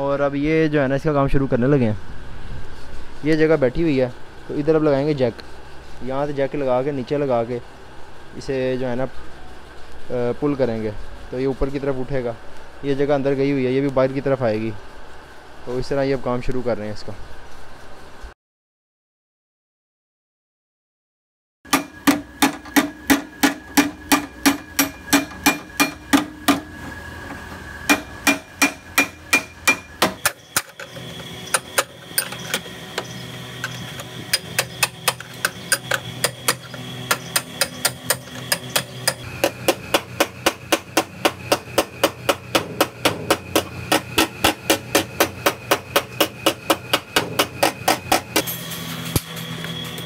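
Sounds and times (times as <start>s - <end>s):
hammer ringing on steel panels: 21.7s - 26.8s, 27.9s - 30.9s.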